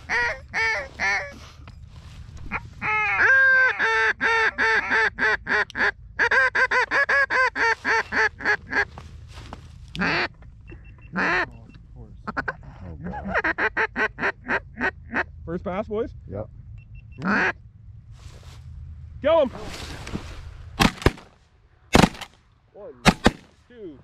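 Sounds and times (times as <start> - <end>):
ducks quacking: 0.0 - 1.6, 2.4 - 10.4, 11.1 - 15.4, 17.2 - 17.6.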